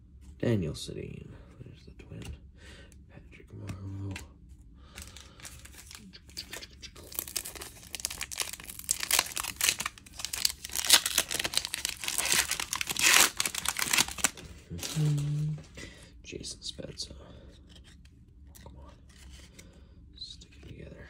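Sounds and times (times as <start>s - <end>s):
wrapper crinkling and tearing: 5.0s - 15.7s.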